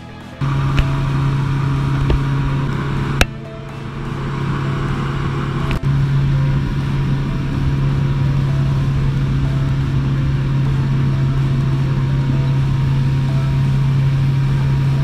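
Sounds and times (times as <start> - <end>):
motorboat engine humming: 0.0 - 15.0.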